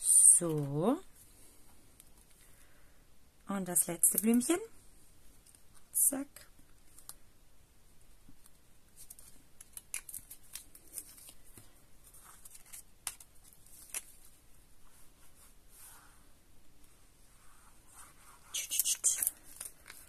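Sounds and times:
card stock rustling: 9.0s - 14.3s, 18.6s - 20.0s.

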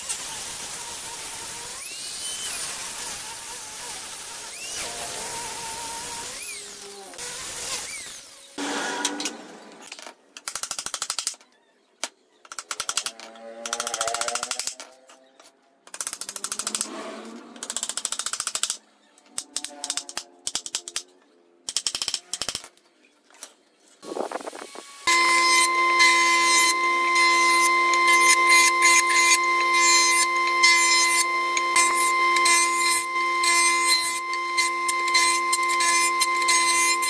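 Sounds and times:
angle grinder winding down: 24.3s - 37.0s.

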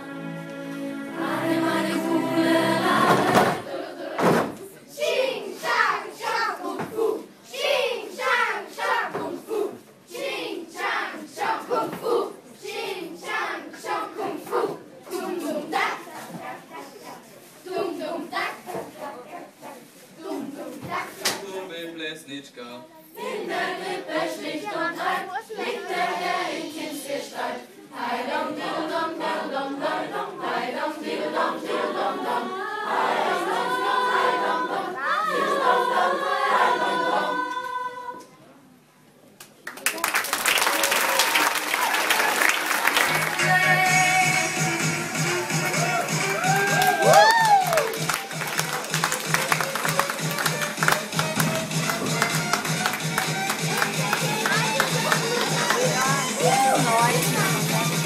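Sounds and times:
choir singing: 0.0s - 16.4s, 17.6s - 18.6s, 23.2s - 38.4s
children chanting: 0.9s - 18.9s, 23.2s - 38.2s.

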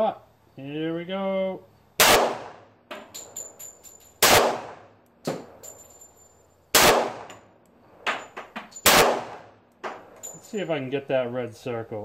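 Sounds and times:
pistol shots: 2.0s - 2.7s, 4.2s - 5.6s, 6.7s - 7.4s, 8.8s - 10.2s
light metallic clicks and clinks: 2.9s - 4.2s, 5.0s - 6.6s, 7.3s - 8.9s, 9.7s - 11.0s.

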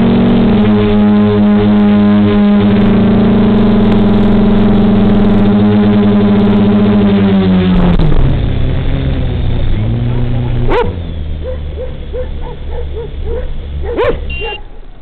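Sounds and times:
quadcopter motors buzzing: 9.5s - 15.0s.

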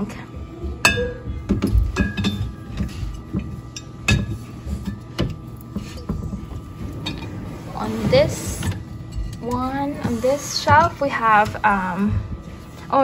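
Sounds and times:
glass bottles clinking: 0.8s - 7.4s.

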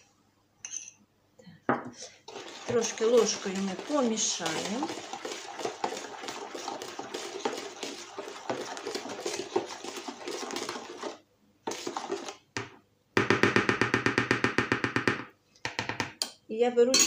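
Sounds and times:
spoon stirring in a plastic bowl: 1.9s - 12.8s.

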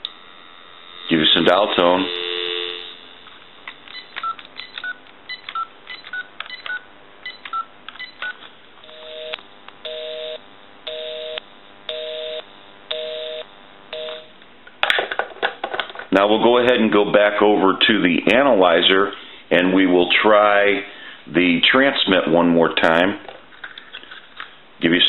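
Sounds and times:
busy signal buzz: 1.9s - 3.0s, 8.9s - 14.3s
phone keypad beeps: 3.9s - 8.4s.

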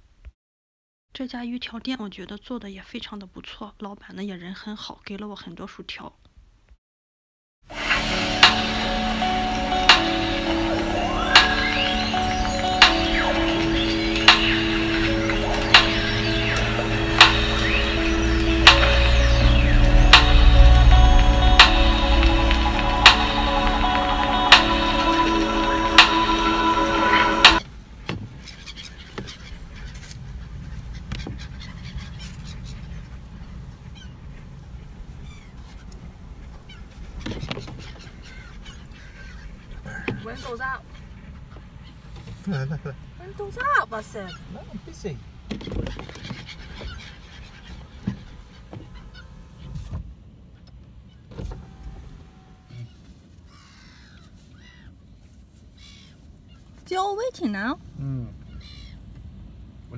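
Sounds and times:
strong wind rumble: 7.7s - 28.4s, 29.5s - 42.1s
gulls squawking: 7.8s - 27.6s, 28.3s - 42.6s, 43.4s - 49.7s.

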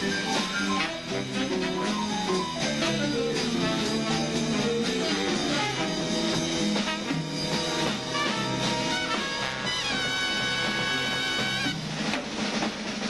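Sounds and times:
big band playing swing jazz: 0.0s - 13.0s.

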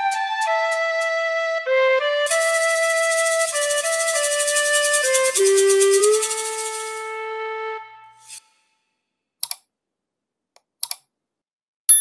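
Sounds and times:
flute-like woodwind melody: 0.0s - 8.4s
sharp mouse clicks: 9.4s - 9.7s, 10.6s - 11.1s.

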